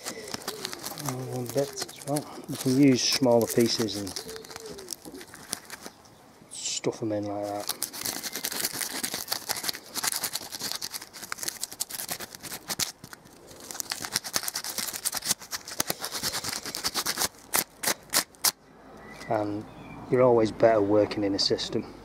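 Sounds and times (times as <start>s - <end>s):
sandpaper rasping on metal: 14.1s - 18.4s.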